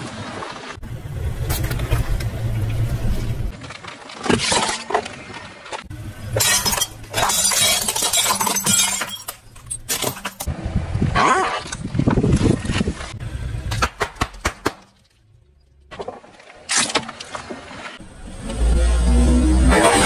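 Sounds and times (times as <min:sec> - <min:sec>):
car tyres rolling on asphalt: 0:00.0 - 0:04.1
glass crackling and shattering: 0:06.3 - 0:10.5.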